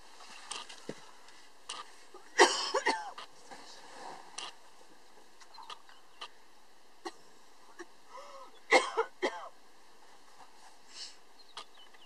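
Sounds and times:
person coughing: 0:02.4 - 0:03.2, 0:07.8 - 0:09.5.

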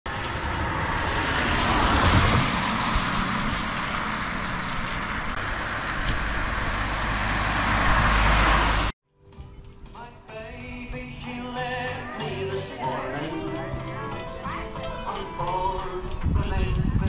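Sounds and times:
tyres hissing on wet road: 0:00.1 - 0:08.9.

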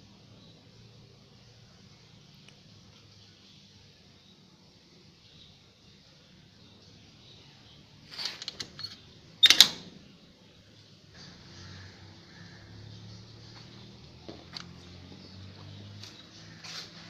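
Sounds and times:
metallic lock clicks: 0:08.2 - 0:10.0.

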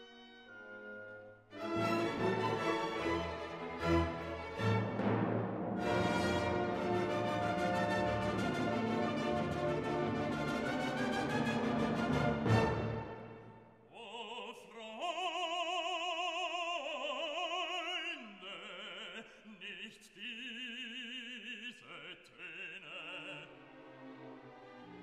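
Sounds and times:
orchestral chord: 0:00.5 - 0:13.5
operatic voice singing: 0:13.9 - 0:23.8.

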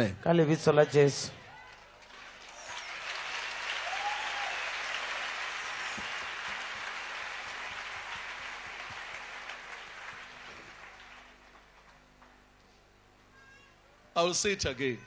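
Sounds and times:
congregation applauding: 0:01.4 - 0:12.6.

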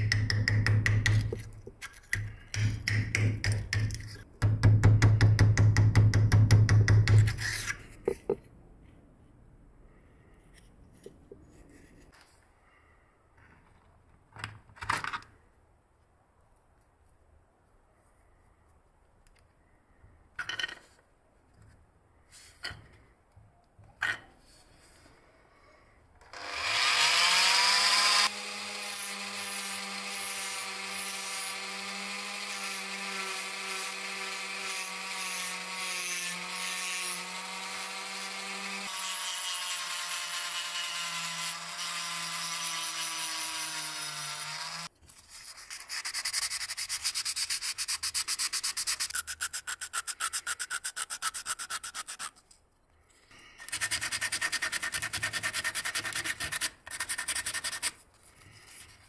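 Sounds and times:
rotary tool whining: 0:26.2 - 0:44.9
metal rubbed on abrasive paper: 0:45.1 - 0:52.4.

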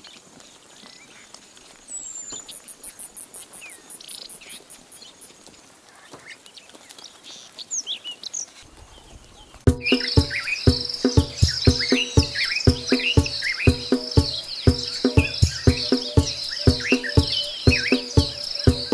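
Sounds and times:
high chirps and whistles: 0:09.7 - 0:18.9
high insect pulsing: 0:09.7 - 0:18.9.

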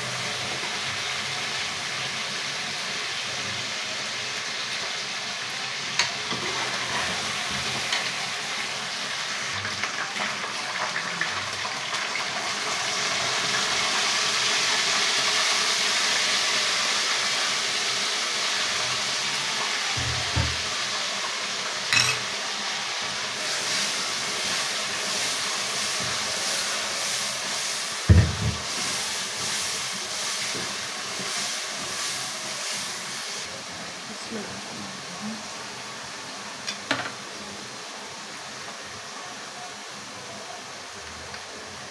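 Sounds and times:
food sizzling in a pan: 0:00.0 - 0:41.9
utensils knocking against pan: 0:20.0 - 0:20.6, 0:21.9 - 0:22.2.

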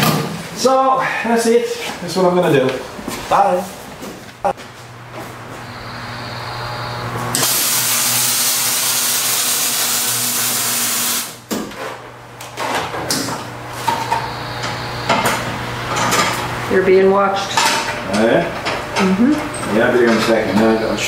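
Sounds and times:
electrical hum: 0:00.3 - 0:21.0
welding arc hissing: 0:05.6 - 0:11.4, 0:14.1 - 0:15.9.

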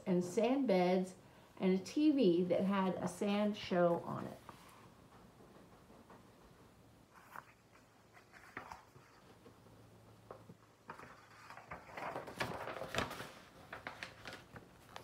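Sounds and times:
book pages rustling: 0:07.1 - 0:15.0.

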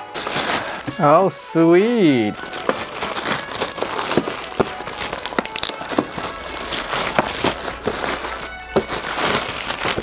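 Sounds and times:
plastic packaging crinkling: 0:00.0 - 0:01.2, 0:02.3 - 0:10.0
background music: 0:00.0 - 0:10.0
small boxes clicking and knocking: 0:02.4 - 0:10.0.

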